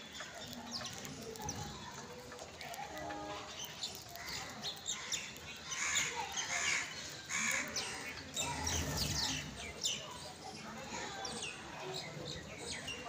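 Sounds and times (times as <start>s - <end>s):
sparrows chirping: 0.0s - 13.0s.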